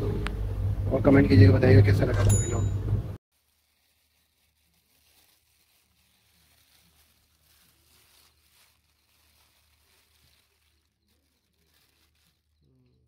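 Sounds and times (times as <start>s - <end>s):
low steady hum: 0.0s - 3.2s
plastic bag crinkling: 3.3s - 13.0s.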